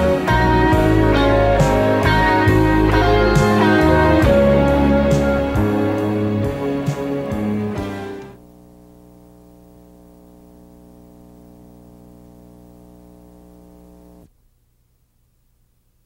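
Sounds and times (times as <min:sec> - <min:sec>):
low buzzy electrical hum: 0:08.4 - 0:16.0.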